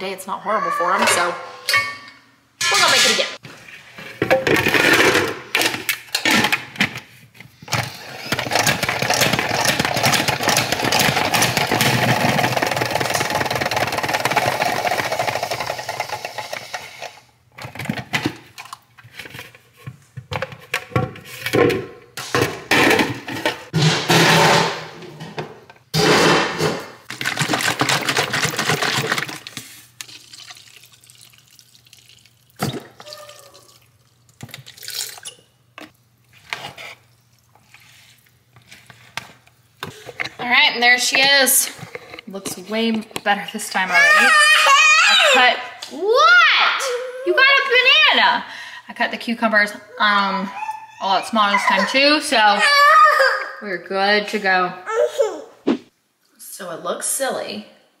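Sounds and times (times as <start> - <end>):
salad spinner spinning: 8.5 - 16.9
water running over pasta: 29.9 - 35.4.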